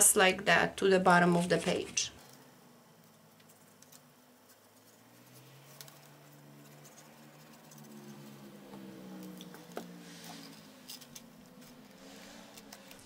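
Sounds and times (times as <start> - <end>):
motorcycle engine passing: 5.0 - 13.0.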